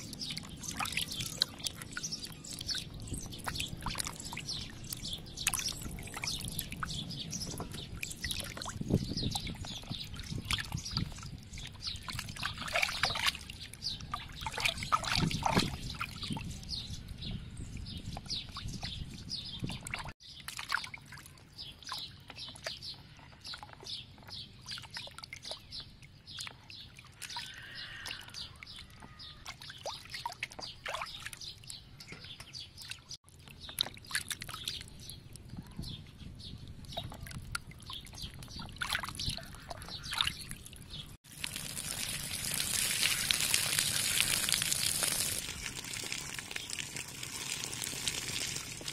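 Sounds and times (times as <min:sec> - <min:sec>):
water sloshing and splashing: 0:00.0 - 0:16.6, 0:18.1 - 0:48.9.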